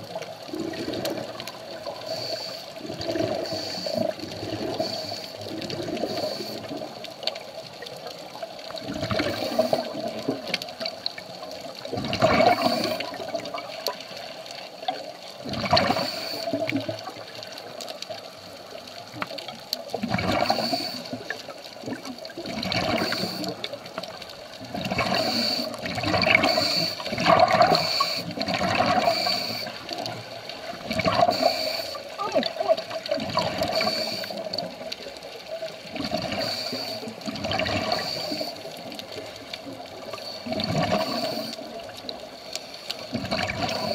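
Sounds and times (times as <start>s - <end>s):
exhaled bubbles rushing underwater: 0.0s - 43.9s
regulator hissing: 25.1s - 27.1s.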